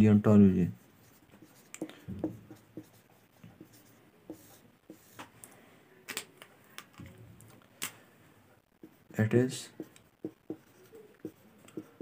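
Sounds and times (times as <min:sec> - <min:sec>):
marker pen scratching on whiteboard: 0:00.8 - 0:05.3, 0:08.8 - 0:12.0.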